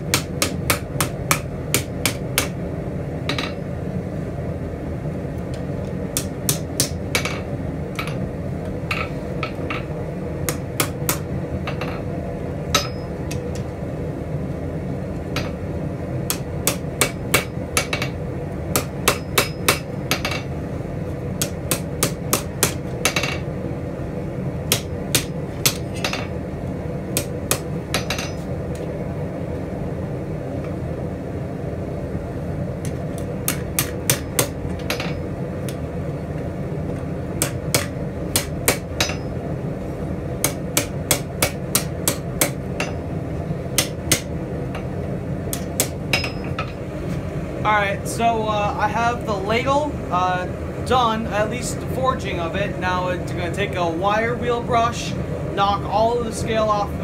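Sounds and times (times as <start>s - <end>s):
hammer striking steel on anvil: 0.0s - 2.6s, 3.3s - 3.6s, 6.2s - 8.2s, 10.5s - 12.0s, 12.7s - 13.6s, 16.3s - 20.5s, 21.4s - 23.4s, 24.7s - 26.3s, 27.2s - 28.5s, 32.9s - 35.3s, 37.4s - 39.4s, 40.4s - 43.0s, 43.8s - 44.9s, 45.5s - 46.8s
steady low hum: 0.0s - 57.0s.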